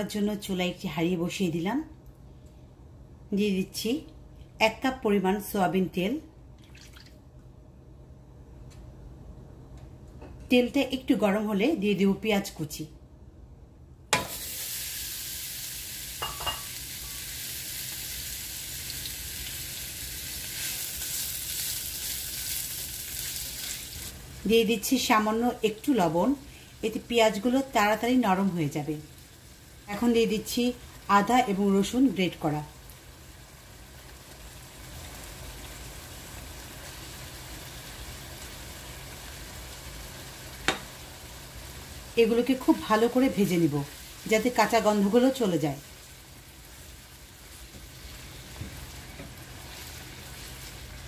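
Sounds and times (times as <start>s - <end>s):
onions sizzling in hot oil: 14.2s - 51.0s.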